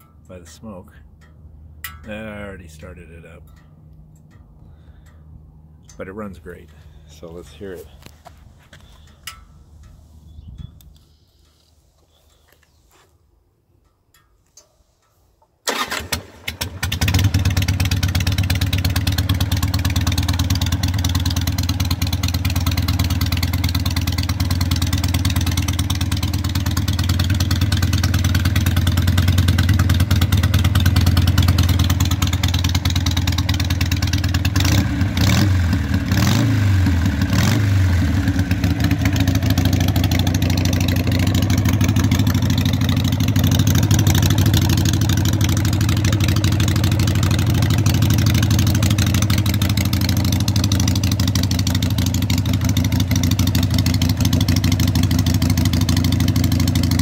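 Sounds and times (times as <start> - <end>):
motorcycle throttle blips: 1.0 - 12.8, 16.8 - 57.0
motorcycle engine starting and idling: 14.1 - 57.0.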